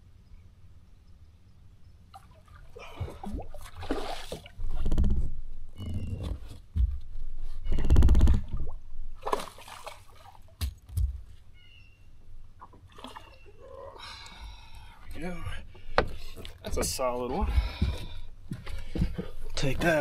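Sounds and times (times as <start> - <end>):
fish splashing in water: 2.1 - 4.6, 9.2 - 10.5.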